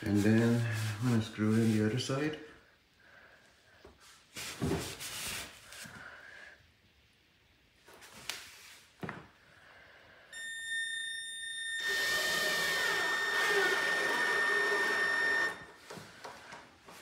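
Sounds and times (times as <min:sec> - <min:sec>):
cordless drill driving screw into wood: 0:11.8 - 0:15.6.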